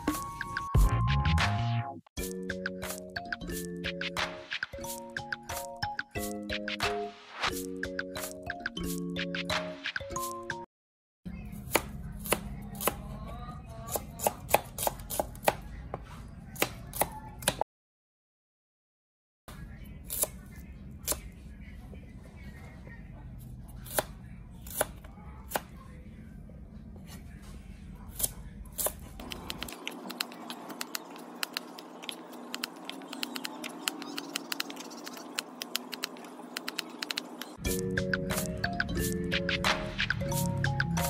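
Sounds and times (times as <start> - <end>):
knife chopping on plastic board: 11.7 - 13.0, 13.9 - 15.6, 28.2 - 37.6.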